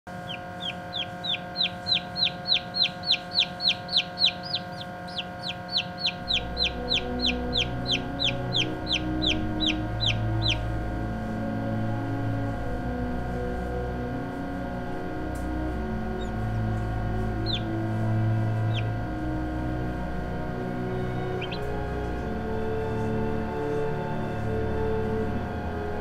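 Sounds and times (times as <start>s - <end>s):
soft music: 0.1s - 26.0s
turkey poult peeping: 0.2s - 10.6s, 16.2s - 16.4s, 17.3s - 17.8s, 18.5s - 19.0s, 21.0s - 21.8s.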